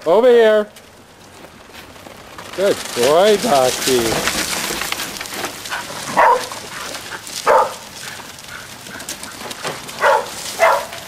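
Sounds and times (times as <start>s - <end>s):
dog barking: 6.1s - 6.6s, 7.4s - 7.9s, 10.0s - 11.0s.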